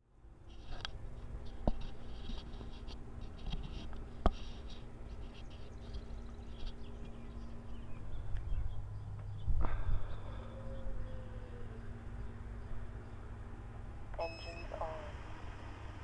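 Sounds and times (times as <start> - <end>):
low steady rumble: 0.0 - 16.0
small birds chirping: 4.4 - 13.4.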